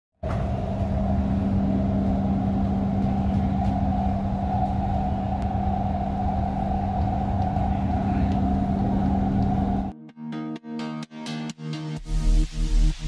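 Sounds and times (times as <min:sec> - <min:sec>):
train hum and rumble: 0:00.2 - 0:09.9
high-pitched drone: 0:00.3 - 0:10.0.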